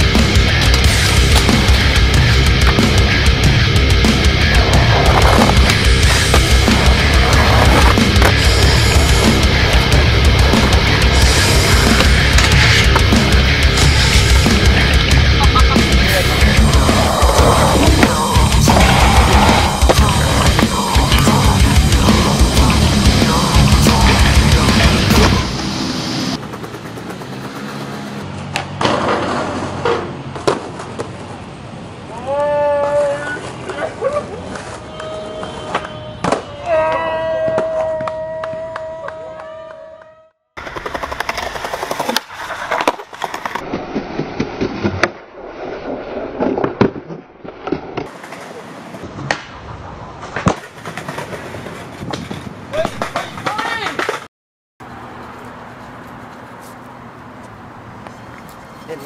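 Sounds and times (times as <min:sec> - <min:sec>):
skateboard wheels rolling on asphalt: 0:00.0 - 0:15.2, 0:15.8 - 0:32.1, 0:32.7 - 0:39.2, 0:40.6 - 0:59.0
skateboard grinding on steel rail: 0:04.0 - 0:30.2, 0:40.6 - 0:49.2
skateboard clacking on ground: 0:26.4 - 0:31.4, 0:40.6 - 0:43.7, 0:50.2 - 0:54.3
skateboard landing clack: 0:28.5 - 0:31.1.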